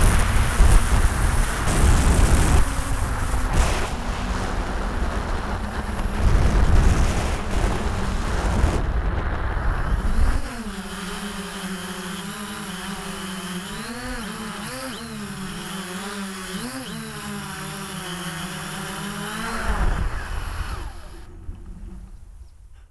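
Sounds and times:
wind rumble on microphone: 0.0 - 10.6
drone motors humming: 0.0 - 22.6.

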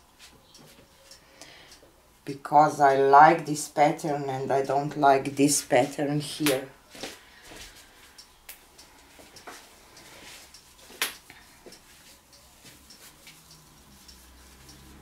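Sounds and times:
clicks and light taps: 0.2 - 2.0, 6.4 - 15.0.

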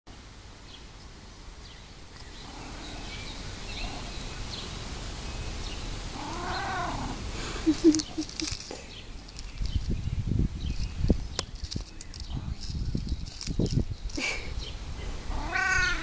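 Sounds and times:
cat meowing: 6.2 - 7.2, 15.3 - 16.0.

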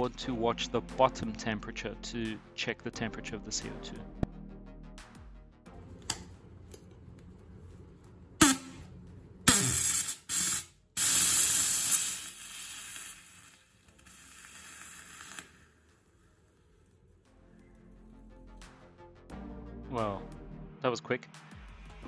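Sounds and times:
gas cartridge hissing: 8.4 - 8.8, 9.5 - 16.2.

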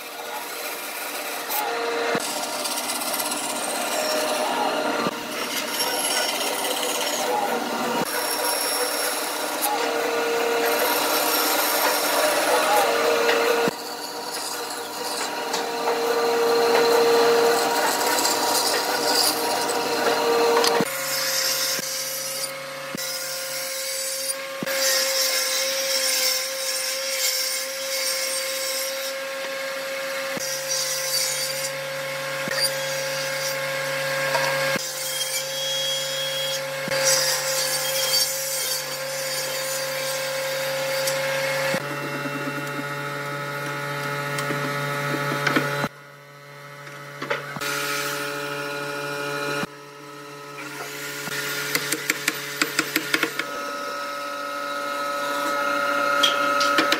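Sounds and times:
woodworking machine humming: 0.0 - 21.1, 39.8 - 56.9
bandsaw cutting wood: 0.0 - 46.0, 46.6 - 56.9.

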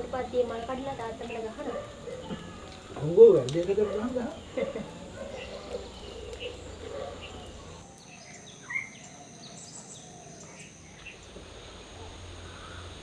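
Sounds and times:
bird chirps: 4.3 - 11.3.

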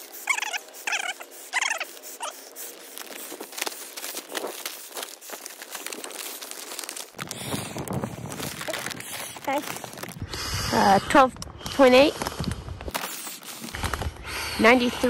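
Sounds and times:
man breathing: 0.0 - 15.0
plastic bag crinkling: 0.2 - 10.2, 12.9 - 14.1.

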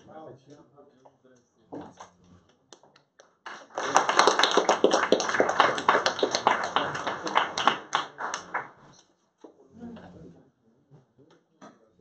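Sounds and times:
audience applauding: 3.4 - 8.8.

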